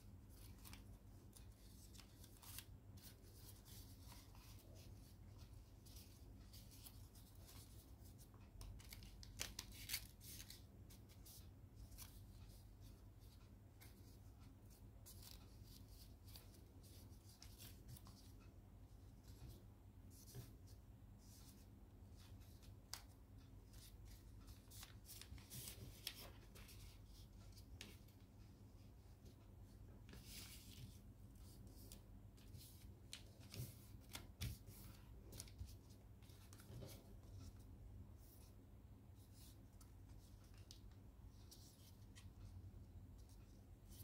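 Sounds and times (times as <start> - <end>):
paper crinkling and rustling: 0.3 - 4.6, 5.3 - 10.6, 23.7 - 28.0.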